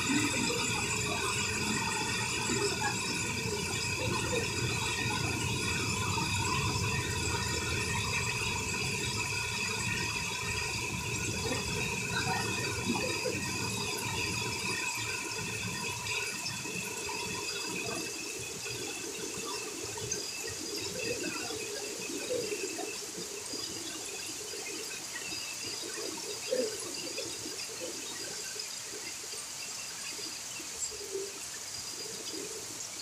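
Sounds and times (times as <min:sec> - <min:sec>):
heavy rain pouring: 0:00.0 - 0:22.8.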